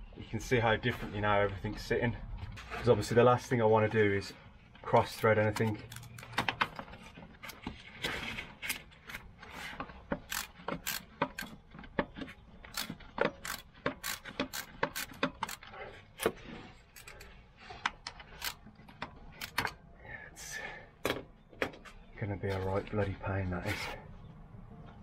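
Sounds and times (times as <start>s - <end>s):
socket ratchet clicking: 10.3s - 11.5s, 12.7s - 15.6s, 19.4s - 19.7s.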